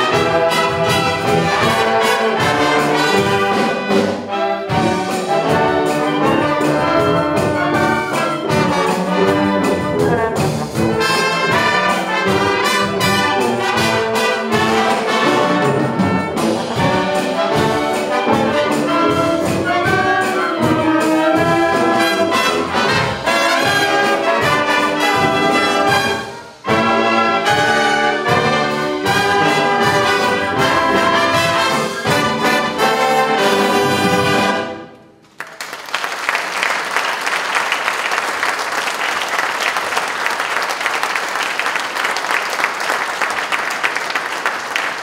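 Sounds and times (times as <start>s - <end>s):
wind band playing: 0.0s - 35.1s
audience applause: 35.3s - 45.0s.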